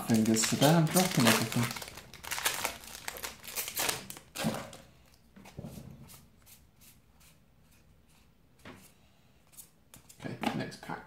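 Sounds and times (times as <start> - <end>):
cards rustling: 0.0 - 4.8
foil wrapper crinkling: 0.0 - 4.8.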